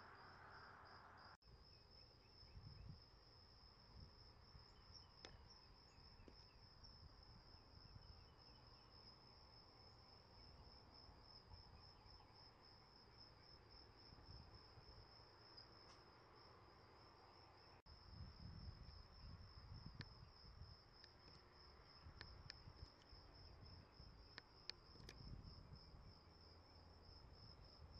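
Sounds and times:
high-pitched insect trill: 0.0s - 27.9s
soft ticks: 22.2s - 23.1s.

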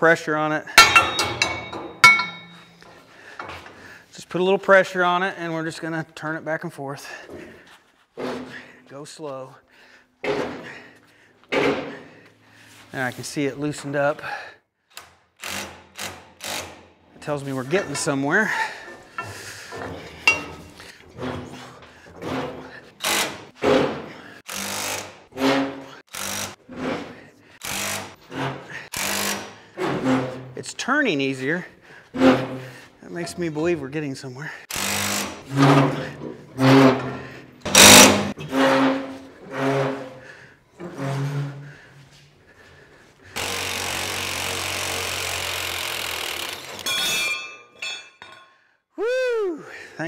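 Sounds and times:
metallic clink with ringing: 0.8s - 2.9s
metal grinding on metal: 0.8s - 3.0s, 17.3s - 22.9s, 35.0s - 41.9s
power tool running: 34.7s - 35.4s, 37.7s - 38.4s, 43.4s - 46.8s.

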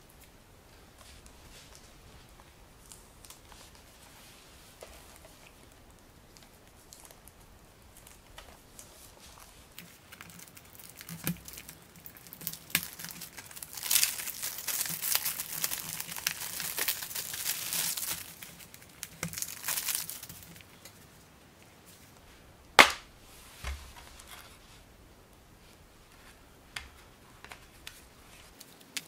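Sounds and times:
plastic shrink-wrap crinkling and tearing: 6.3s - 20.9s.

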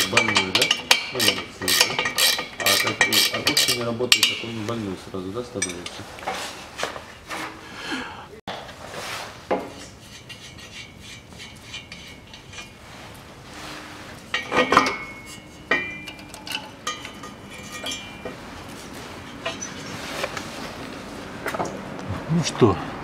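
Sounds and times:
metal tools clinking on steel: 0.0s - 4.7s, 5.5s - 6.0s, 14.2s - 20.4s
sharp metallic clanks: 0.0s - 4.8s, 14.3s - 20.3s.

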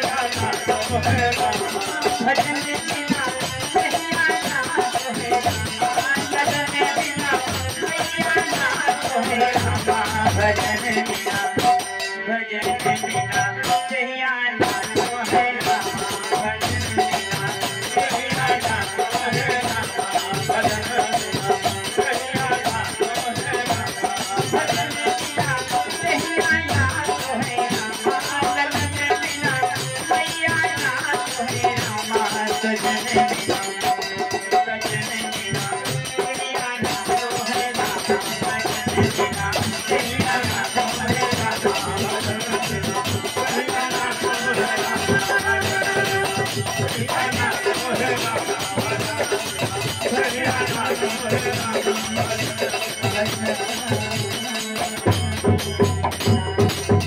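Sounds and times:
harmonium: 0.0s - 57.0s
man singing: 0.0s - 57.0s
rattling percussion: 0.0s - 57.0s.

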